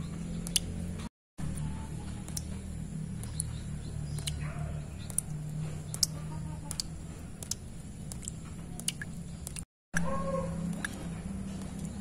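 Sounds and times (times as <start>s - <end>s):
water drops plinking into pool: 2.1s - 10.1s.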